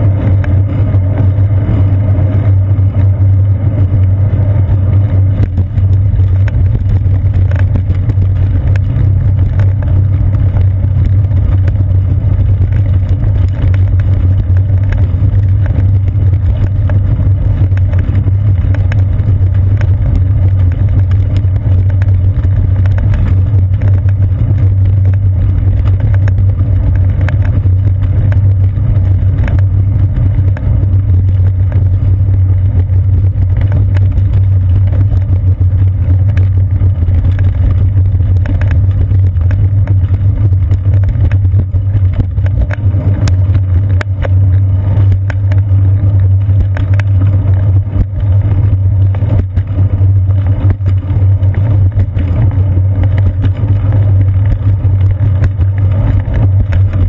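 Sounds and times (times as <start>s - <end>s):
bicycle rolling over bricks: 0.0s - 57.0s.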